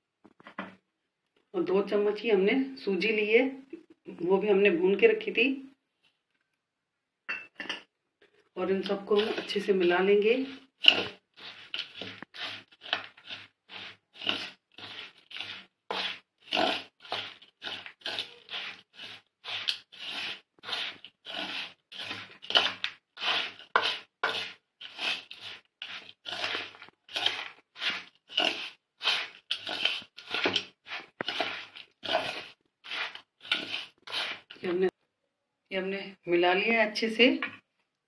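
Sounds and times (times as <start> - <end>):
hand mixing dry filling in steel bowl: 8.2 - 35.0.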